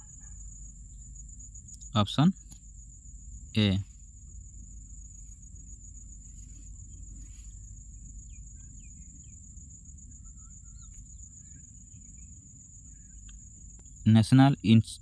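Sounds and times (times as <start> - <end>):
low hum: 0.0 - 14.2
faint bird chirps: 0.0 - 14.8
cricket trill: 0.0 - 15.0.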